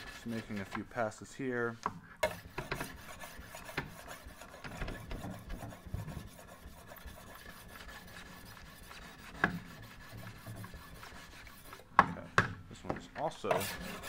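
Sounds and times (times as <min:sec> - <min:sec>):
sharpening stone scraping knife: 0:13.5 - 0:14.0.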